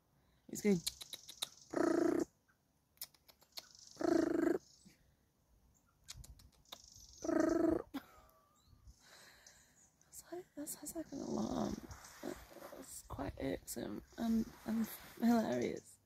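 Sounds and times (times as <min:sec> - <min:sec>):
quick vocal clicks: 0:00.7 - 0:02.2, 0:03.0 - 0:04.6, 0:06.0 - 0:07.4.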